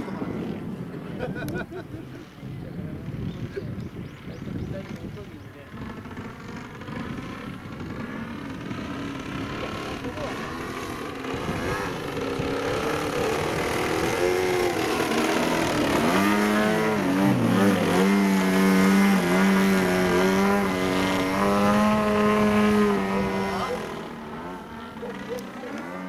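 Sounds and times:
model airplane motor and propeller: 0:00.0 - 0:01.6, 0:02.2 - 0:26.0.

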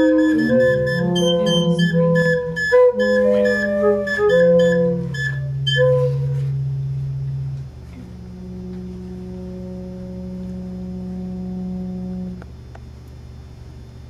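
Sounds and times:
wooden pipes blown by mouth: 0:00.0 - 0:12.4
low drone: 0:00.0 - 0:12.5.

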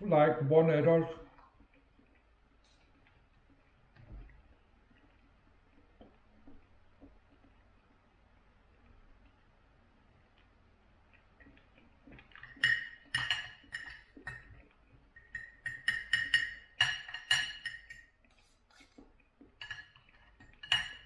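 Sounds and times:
knife and fork clinking on plate: 0:19.6 - 0:21.0.

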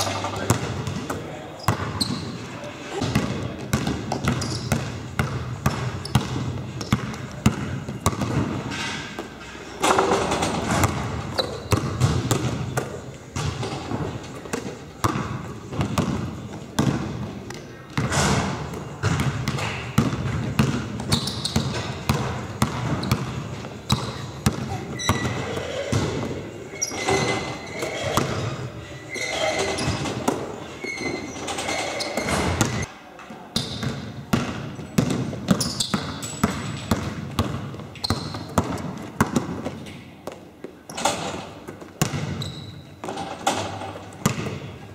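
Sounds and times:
sneakers squeaking on floor: 0:00.0 - 0:32.9, 0:33.6 - 0:44.9
basketball bouncing on wooden floor: 0:03.0 - 0:08.6, 0:10.6 - 0:17.1, 0:18.0 - 0:26.4, 0:33.6 - 0:39.8, 0:42.0 - 0:43.6, 0:44.2 - 0:44.6.

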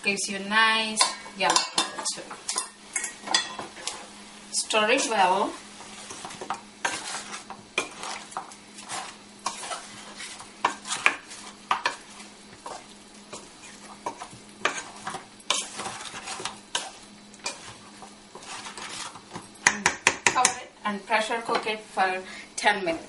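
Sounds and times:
meat sizzling: 0:00.0 - 0:22.9
wooden spoon scraping metal pot: 0:04.9 - 0:19.4.

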